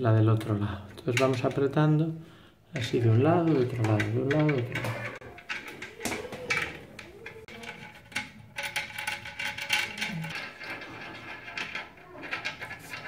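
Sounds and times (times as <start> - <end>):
plastic wing nut clicking and scraping: 2.8 - 13.0.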